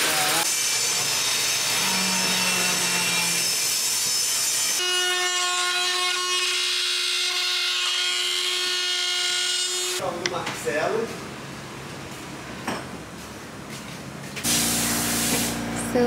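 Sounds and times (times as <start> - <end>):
power tool cutting or sanding: 0.0 - 10.0, 14.4 - 15.8.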